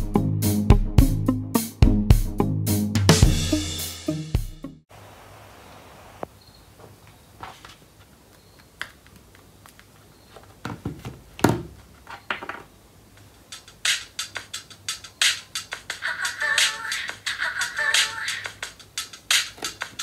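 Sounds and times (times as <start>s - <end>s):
music from small speaker: 15.2s - 20.0s.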